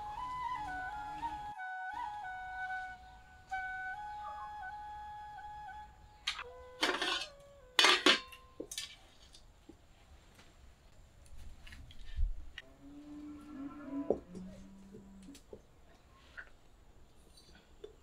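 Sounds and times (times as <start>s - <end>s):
metal pot lid clanking: 6.8s - 8.9s.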